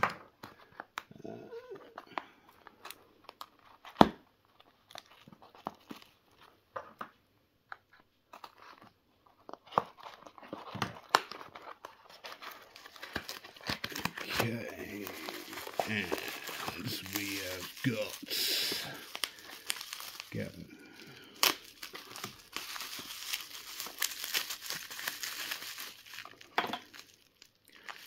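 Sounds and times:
cardboard rustling: 7.9s - 20.7s, 21.4s - 27.1s.

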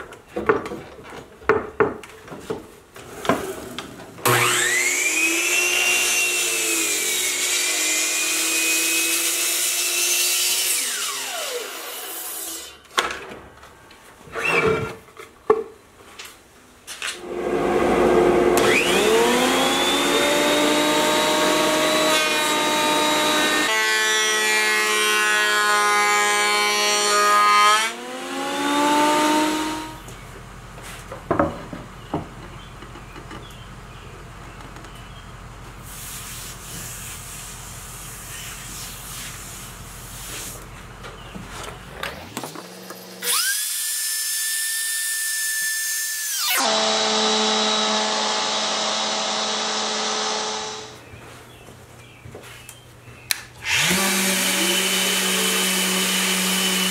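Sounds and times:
router motor whine: 4.2s - 8.6s, 17.2s - 23.7s, 46.3s - 51.0s, 53.6s - 56.9s
power tool motor whining: 17.3s - 23.7s, 46.3s - 51.0s, 53.6s - 56.9s.

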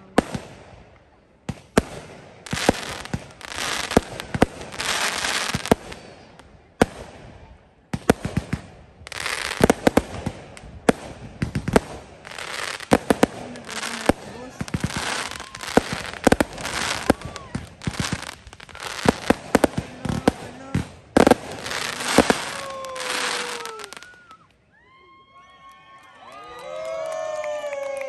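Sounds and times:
firework shells bursting: 8.1s - 23.9s
hissing crackle: 8.4s - 24.4s.

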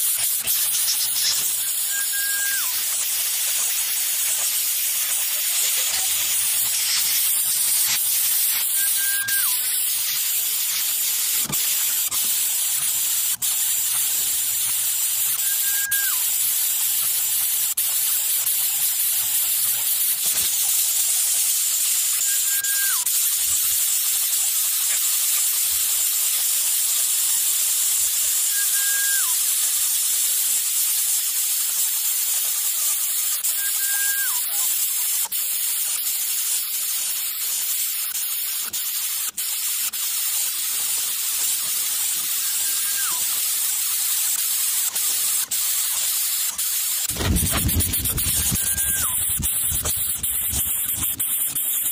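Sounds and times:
steady high hiss: 0.0s - 51.9s
short falling whistled note: 1.2s - 3.0s, 8.6s - 9.7s, 15.3s - 16.3s, 22.2s - 23.1s, 28.5s - 29.4s, 33.5s - 34.6s, 42.4s - 43.4s, 47.1s - 49.6s.

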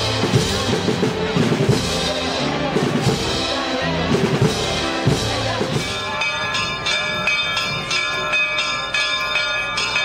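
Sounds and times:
church bell pealing: 4.6s - 10.0s.

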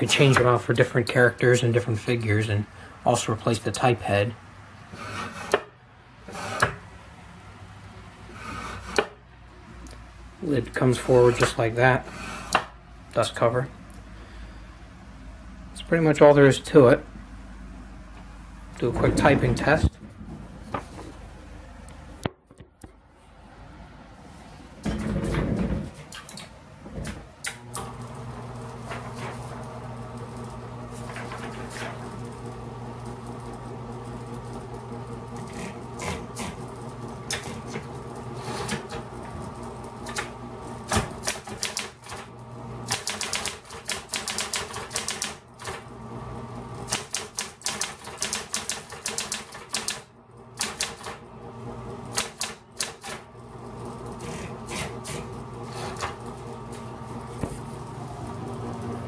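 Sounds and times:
typewriter motor humming: 27.4s - 45.9s, 46.7s - 51.2s, 52.0s - 59.0s
typewriter clicks: 40.9s - 42.2s, 42.9s - 45.8s, 46.9s - 50.0s, 50.6s - 51.2s, 52.1s - 53.2s
typewriter keys striking: 41.2s - 42.2s, 42.9s - 45.8s, 46.9s - 50.0s, 50.6s - 51.2s.

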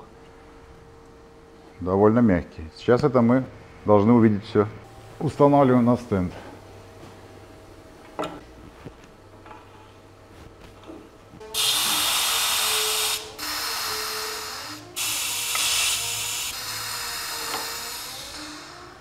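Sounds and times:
compressed air hissing: 11.4s - 19.0s.

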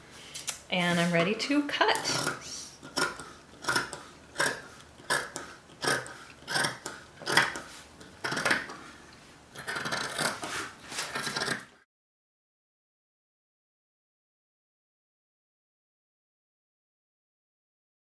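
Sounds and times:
scissors snipping fabric: 2.0s - 8.7s, 9.6s - 10.4s.

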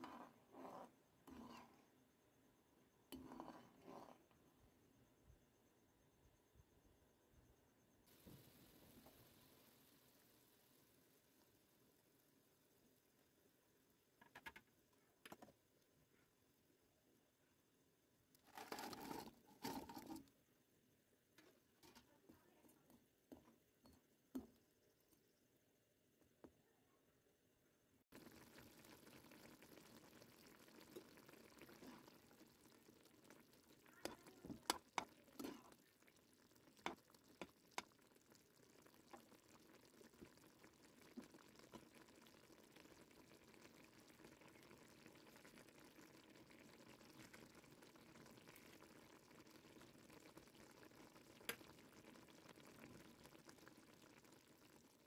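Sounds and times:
sugar syrup bubbling and sizzling: 0.0s - 26.5s, 28.0s - 55.0s
sharp popping in pan: 33.2s - 35.8s, 36.6s - 38.1s.

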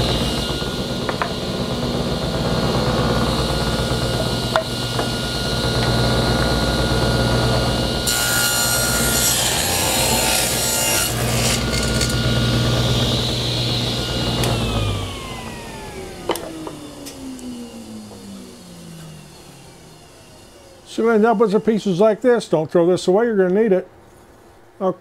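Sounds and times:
table saw running: 0.0s - 22.6s
saw blade ripping wood: 8.1s - 12.4s.

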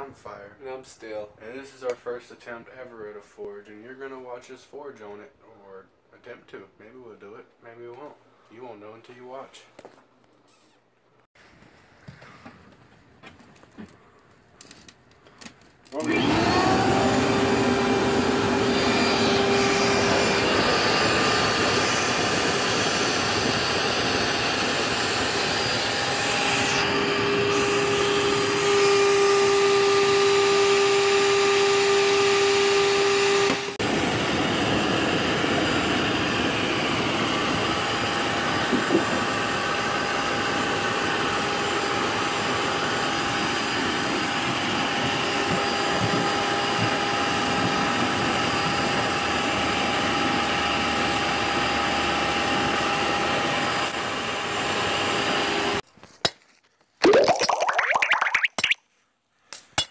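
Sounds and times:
electric air blower whining: 15.9s - 55.8s.

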